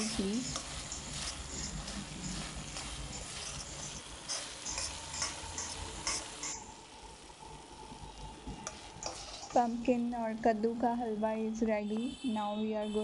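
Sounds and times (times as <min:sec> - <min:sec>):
steel ladle scraping a pan: 0:00.0 - 0:06.7, 0:08.7 - 0:09.6
halwa sizzling in a pan: 0:00.0 - 0:13.0.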